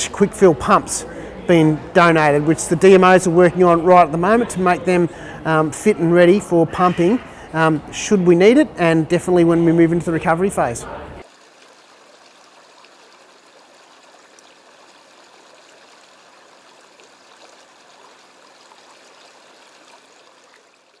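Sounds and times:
shallow water flowing: 0:11.2 - 0:21.0
water trickling ticks: 0:11.2 - 0:21.0.

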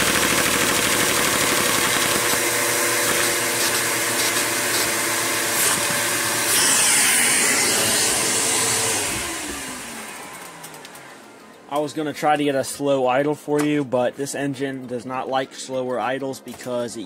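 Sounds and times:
rapid clatter of small engine: 0:00.0 - 0:04.8.

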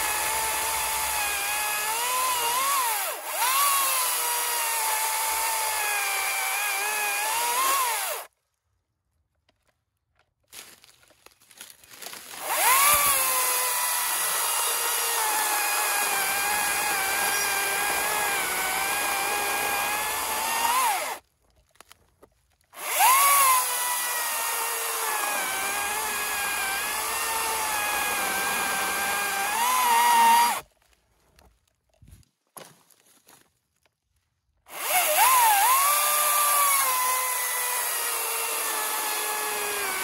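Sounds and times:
chainsaw cutting wood: 0:00.0 - 0:08.3, 0:12.0 - 0:21.2, 0:22.8 - 0:30.7, 0:34.7 - 0:40.0.

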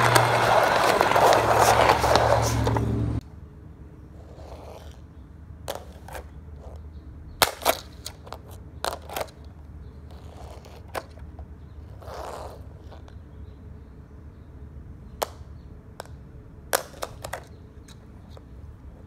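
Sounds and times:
low steady hum: 0:00.0 - 0:07.5.

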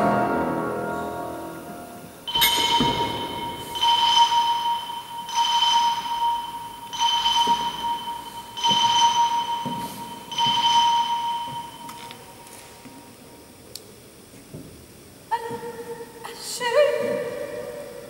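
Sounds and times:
telephone bell ringing: 0:02.3 - 0:12.3
steady bell tone: 0:02.3 - 0:12.8.

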